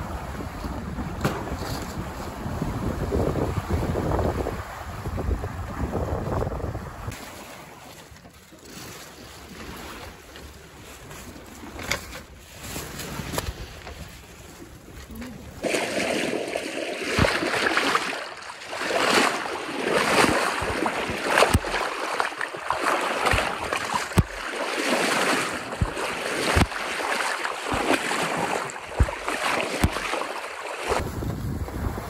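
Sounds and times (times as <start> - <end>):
wind buffeting microphone: 0.0 - 7.1, 30.9 - 32.0
water slapping against bow: 0.1 - 14.6, 15.6 - 32.0
bow wave rushing against hull: 15.5 - 32.0.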